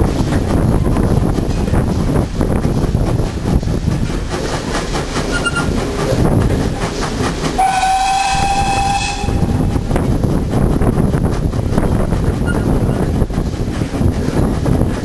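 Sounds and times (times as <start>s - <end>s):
steam train rumbling: 0.0s - 15.0s
wind buffeting microphone: 0.0s - 15.0s
steam whistle: 7.6s - 9.6s.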